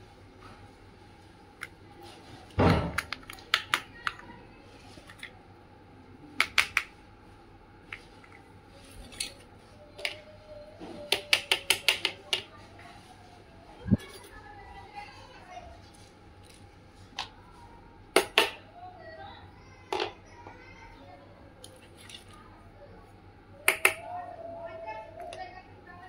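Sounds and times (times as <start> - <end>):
plastic toy pieces clicking: 3.0 - 4.3, 6.4 - 6.9, 11.1 - 12.4.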